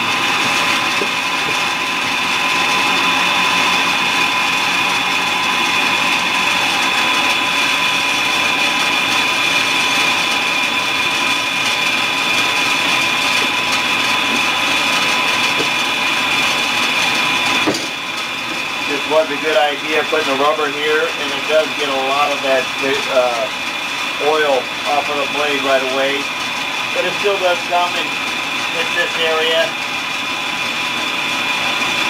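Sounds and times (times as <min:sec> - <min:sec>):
band saw cutting metal: 0:00.0 - 0:32.0.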